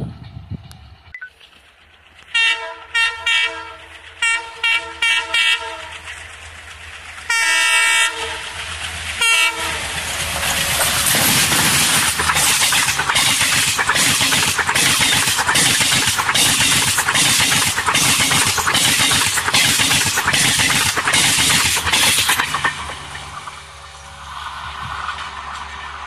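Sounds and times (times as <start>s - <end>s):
train rushing past: 0.0s - 26.0s
locomotive air horn blasts: 2.3s - 6.0s, 7.3s - 8.6s, 9.2s - 10.0s.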